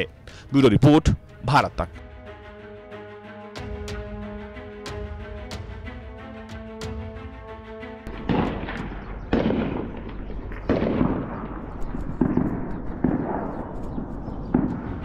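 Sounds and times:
heavy weapons booms with echo: 0:08.1 - 0:15.0.

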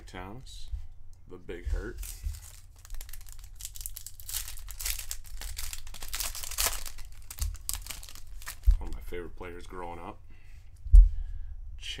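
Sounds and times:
card pack wrapper crinkling and tearing: 0:01.8 - 0:09.1.

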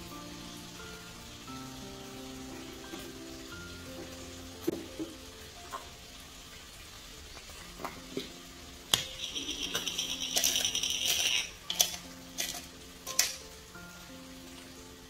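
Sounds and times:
soft background music: 0:00.0 - 0:15.0
utensil clinking against glass jug: 0:08.9 - 0:13.4.

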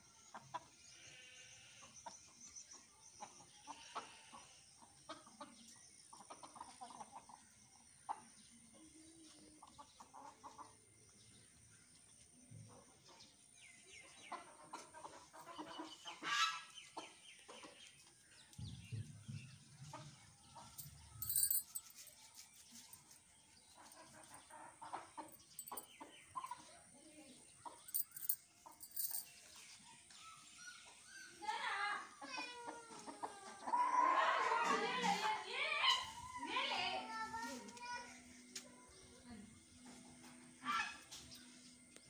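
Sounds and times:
chickens clucking: 0:04.8 - 0:08.3, 0:14.0 - 0:18.2, 0:23.8 - 0:26.9, 0:32.6 - 0:35.3.

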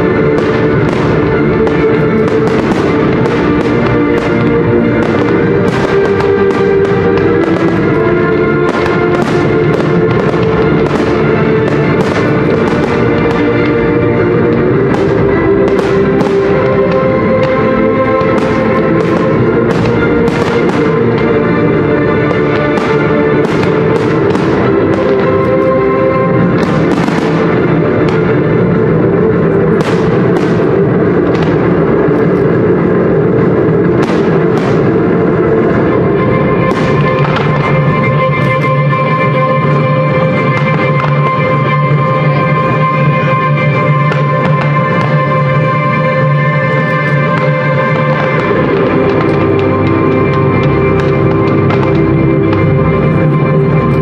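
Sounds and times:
loud music with sustained tones: 0:00.0 - 0:54.0
firework shells bursting: 0:00.4 - 0:28.4.

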